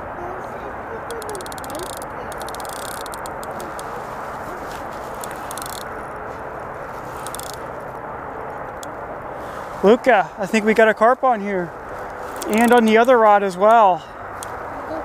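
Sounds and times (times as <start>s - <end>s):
fishing reel being cranked: 1.1s - 3.8s, 5.2s - 5.9s, 7.2s - 7.6s, 12.4s - 13.0s
fishing reel rapid clicking: 1.1s - 3.8s, 5.2s - 5.9s, 7.2s - 7.6s
steady rushing hiss: 1.1s - 15.0s.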